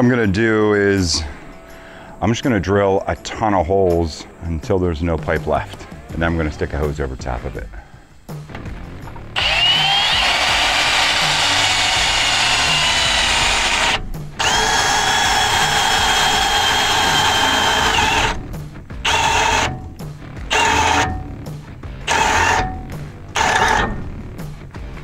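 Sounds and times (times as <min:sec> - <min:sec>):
drill boring through metal: 0:09.4 - 0:21.3, 0:22.0 - 0:24.1.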